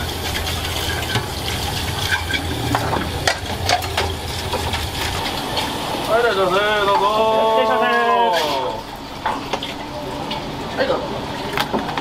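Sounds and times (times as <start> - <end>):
steady low hum: 0.0 - 7.1
water running: 0.0 - 12.0.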